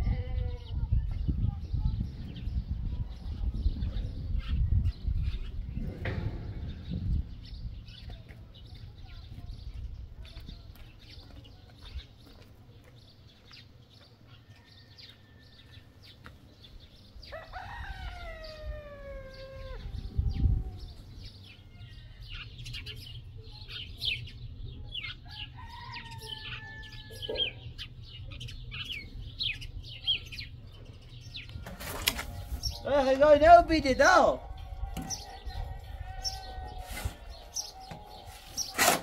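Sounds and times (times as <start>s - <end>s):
rooster crowing: 17.3s - 19.9s, 25.4s - 27.3s, 34.5s - 37.7s.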